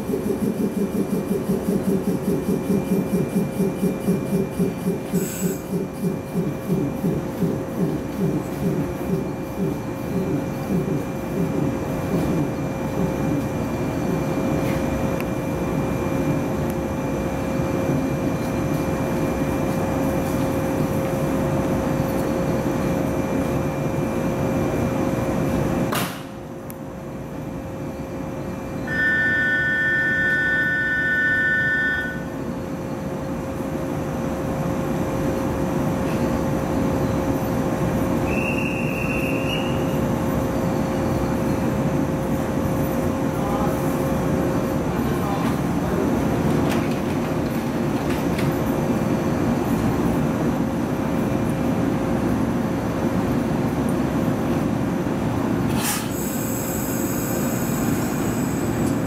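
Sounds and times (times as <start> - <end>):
electric train humming drone: 0.0 - 59.0
short high tone: 28.8 - 32.4
two-tone electronic signal: 28.8 - 32.4.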